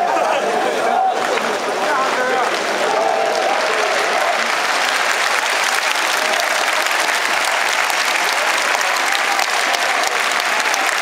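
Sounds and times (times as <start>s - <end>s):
crowd clapping: 0.0s - 11.0s.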